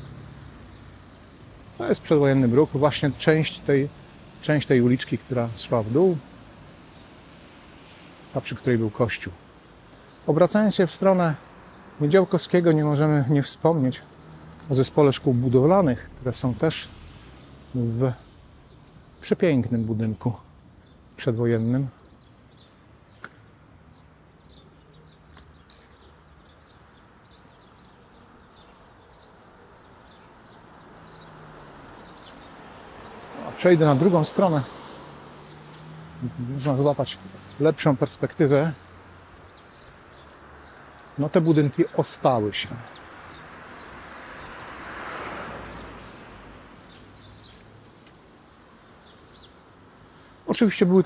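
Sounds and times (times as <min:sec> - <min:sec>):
small birds chirping: 0:00.0 - 0:51.0
car tyres hissing on wet street: 0:16.0 - 0:19.0, 0:31.0 - 0:36.2, 0:43.4 - 0:48.4, 0:49.9 - 0:50.4.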